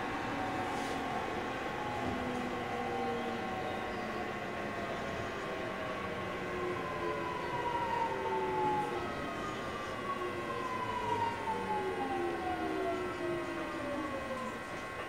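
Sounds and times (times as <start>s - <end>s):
train inverter and motor whine: 0.0s - 15.0s
train running noise: 0.0s - 15.0s.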